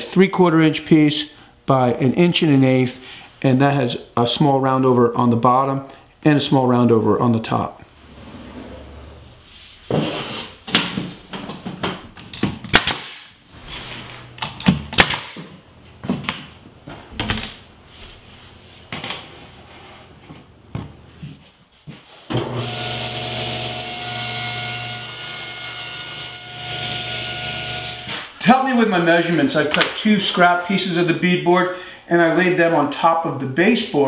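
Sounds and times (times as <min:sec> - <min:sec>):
table saw running: 0:22.4 - 0:28.1.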